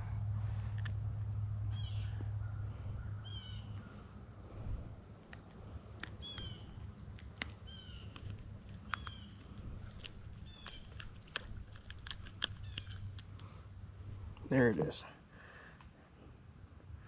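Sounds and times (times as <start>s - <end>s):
low rumble: 0.0s - 7.2s
bird calling: 1.7s - 4.2s, 6.0s - 6.9s, 7.5s - 14.3s
sharp clicks: 5.3s - 13.6s.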